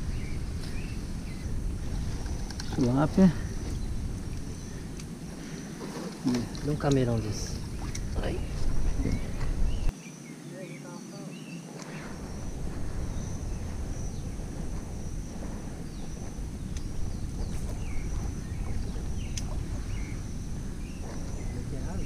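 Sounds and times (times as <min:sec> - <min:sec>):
wind buffeting microphone: 0:00.0 - 0:09.9, 0:11.8 - 0:22.0.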